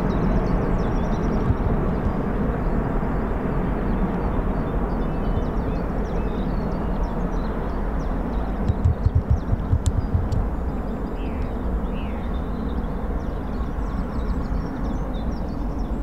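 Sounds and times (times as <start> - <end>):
jet aircraft engine: 0.0 - 9.8.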